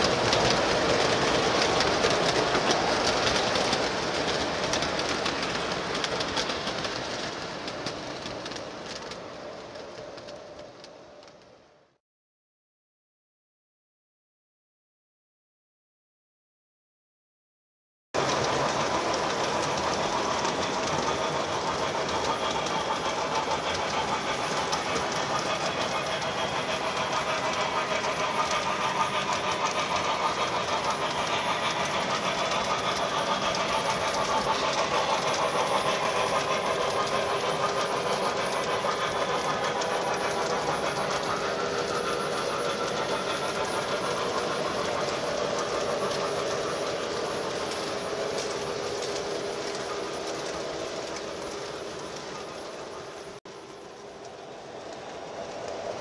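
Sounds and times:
model train wheels rumbling on rail: 0:00.0 - 0:12.0, 0:18.2 - 0:56.0.

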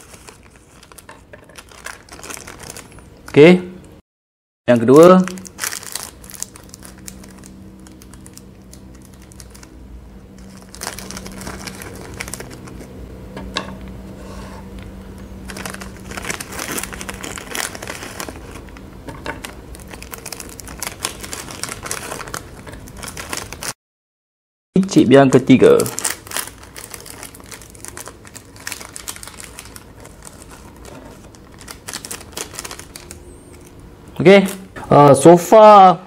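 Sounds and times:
foil snack packet crinkling: 0:00.0 - 0:03.3, 0:05.0 - 0:09.8, 0:10.4 - 0:12.9, 0:15.4 - 0:18.8, 0:19.4 - 0:23.8, 0:25.4 - 0:34.6.

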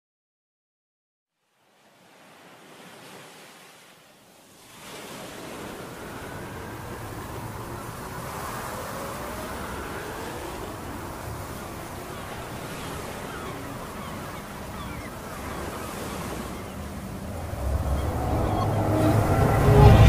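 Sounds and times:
faint gliding tones: 0:05.2 - 0:20.0
steady rushing noise: 0:05.4 - 0:20.0.

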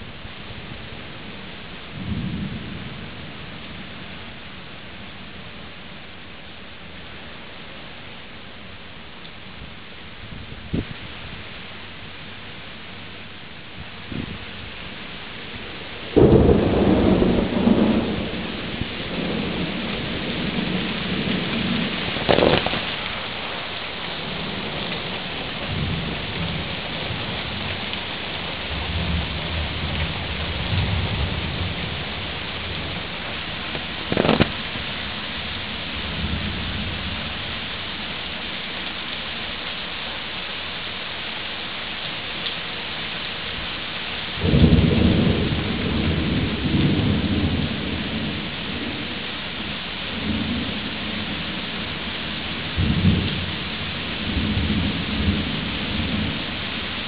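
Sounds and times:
steady rain on pavement: 0:00.0 - 0:57.0
thunder rumbling: 0:00.6 - 0:04.2, 0:13.9 - 0:37.6, 0:44.4 - 0:56.8.

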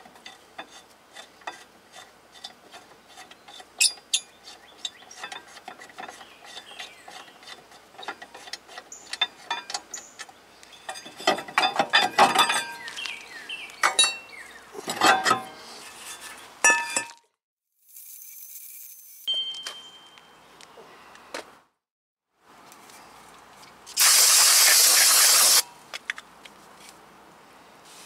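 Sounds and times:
metal clinking and scraping: 0:00.0 - 0:13.0, 0:13.8 - 0:17.2.

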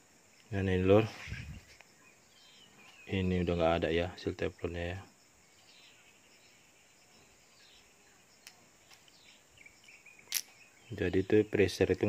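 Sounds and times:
faint high chirping: 0:00.0 - 0:12.0
small metal parts clicking: 0:10.2 - 0:10.6.

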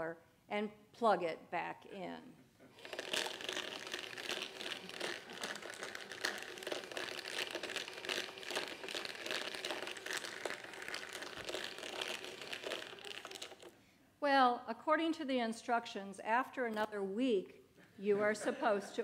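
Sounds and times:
rock tumbler rattling: 0:02.8 - 0:13.7.

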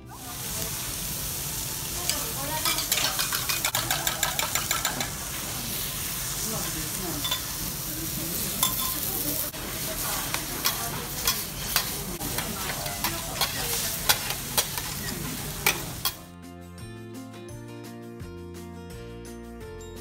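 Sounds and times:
food sizzling on a griddle: 0:00.0 - 0:16.3
metal spatulas scraping on griddle: 0:02.6 - 0:05.5, 0:08.6 - 0:16.2
soft music: 0:15.3 - 0:20.0.

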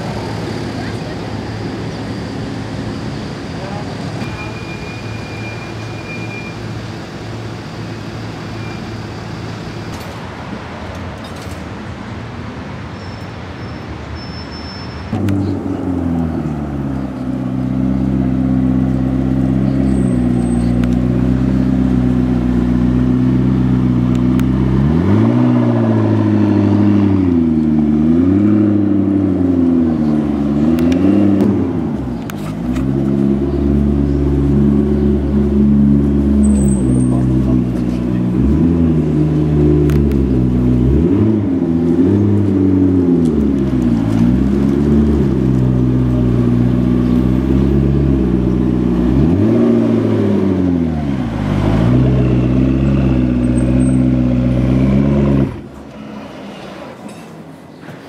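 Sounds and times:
street noise: 0:00.0 - 0:58.0
car engine revving: 0:20.7 - 0:55.8.

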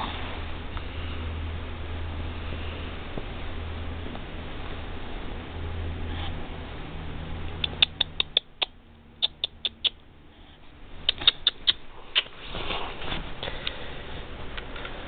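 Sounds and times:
sharp clicks: 0:07.5 - 0:10.0, 0:11.0 - 0:12.3
soft rustle: 0:12.0 - 0:15.0.

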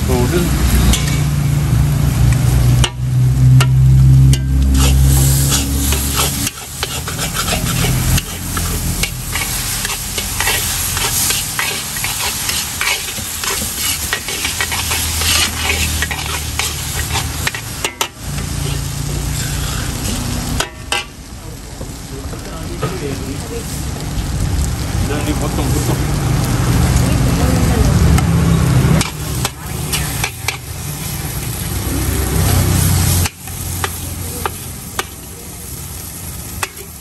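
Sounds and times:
food sizzling: 0:00.0 - 0:37.0
metal ladle scraping a wok: 0:00.7 - 0:01.6, 0:02.8 - 0:21.2, 0:28.8 - 0:35.2, 0:36.1 - 0:37.0.

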